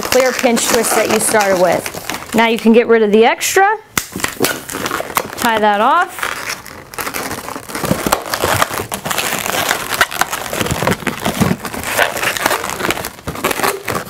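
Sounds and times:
balloons rubbing and clicking: 0:00.0 - 0:02.6, 0:04.0 - 0:14.0.

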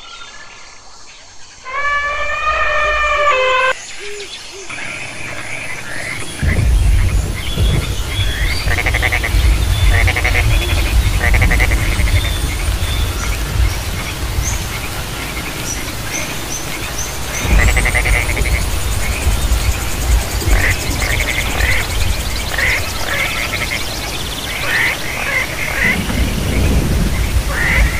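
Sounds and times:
steady low rumble: 0:05.5 - 0:27.9
frogs calling with pulsed trills: 0:17.3 - 0:26.0.

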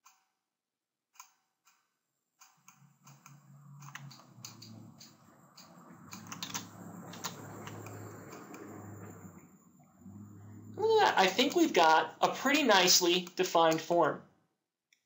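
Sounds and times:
computer mouse clicks: 0:01.2 - 0:09.0
keyboard key presses: 0:02.4 - 0:08.6
low steady hum: 0:02.8 - 0:14.2.

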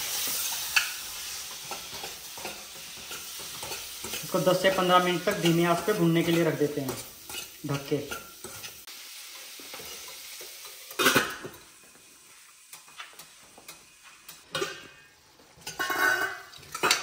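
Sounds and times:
food sizzling in a pan: 0:00.0 - 0:17.0
metal lid clanking: 0:15.7 - 0:17.0.

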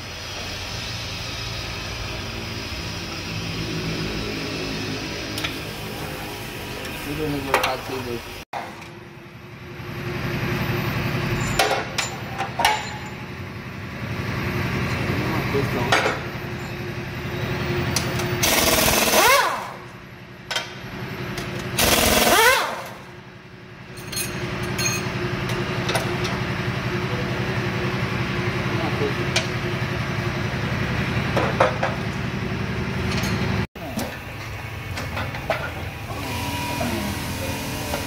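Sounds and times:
air motor whine: 0:00.0 - 0:20.2, 0:24.9 - 0:38.0
impact wrench hammering: 0:21.8 - 0:23.0.

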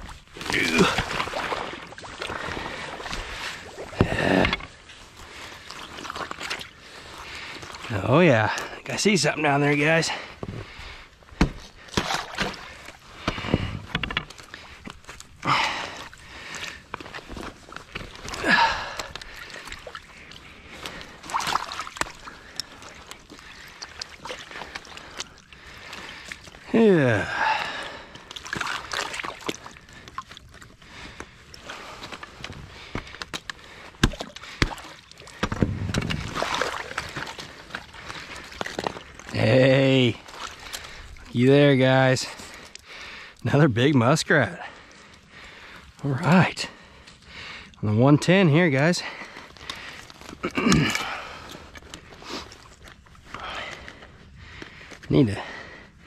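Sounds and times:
icy water sloshing: 0:00.0 - 0:56.0
water splash: 0:21.2 - 0:22.9, 0:34.0 - 0:37.4.

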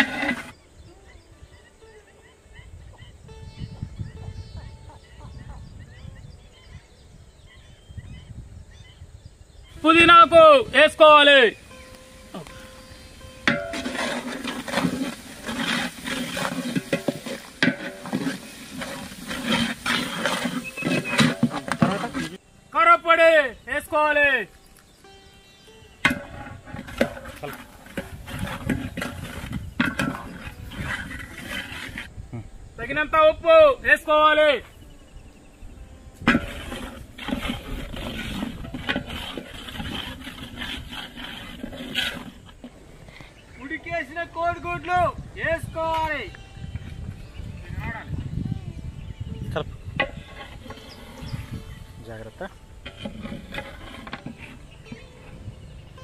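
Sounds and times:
masala sizzling: 0:00.0 - 0:00.6, 0:09.7 - 0:32.1, 0:36.1 - 0:44.8, 0:50.0 - 0:55.4
metal ladle scraping metal pot: 0:00.0 - 0:00.6, 0:09.8 - 0:22.4, 0:23.6 - 0:32.2, 0:36.2 - 0:43.8, 0:49.8 - 0:56.0.

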